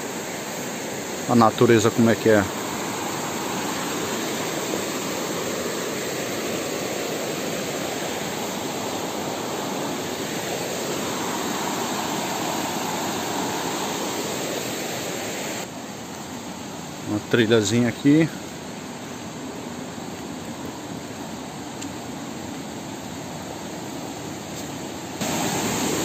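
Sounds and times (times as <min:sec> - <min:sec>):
stream rushing over rocks: 0:00.0 - 0:16.2, 0:25.1 - 0:26.0.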